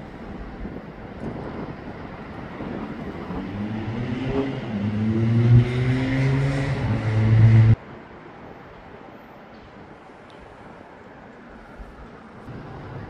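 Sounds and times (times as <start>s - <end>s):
vehicle engine accelerating: 3.2s - 7.8s.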